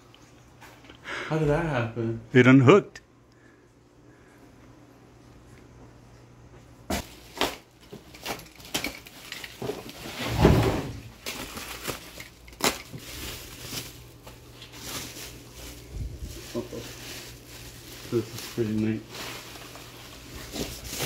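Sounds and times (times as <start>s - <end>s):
plastic packaging crinkling: 6.9s - 10.2s, 11.0s - 21.0s.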